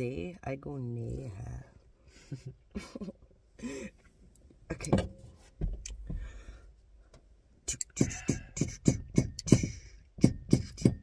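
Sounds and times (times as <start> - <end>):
rapid thumping beat: 7.9 - 11.0.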